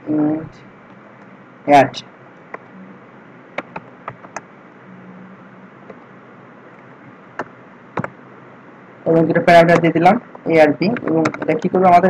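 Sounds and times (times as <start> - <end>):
faint steady hiss: 0.0 - 12.0
keyboard keys clicking: 3.6 - 4.4.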